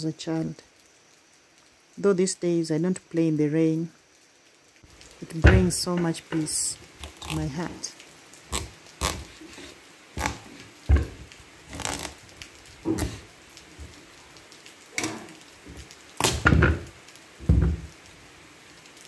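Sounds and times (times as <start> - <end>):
pumpkin splitting: 5.3 - 7.8, 8.5 - 13.9, 15.0 - 17.9
knife cutting pumpkin rind: 7.0 - 7.6, 8.5 - 10.6.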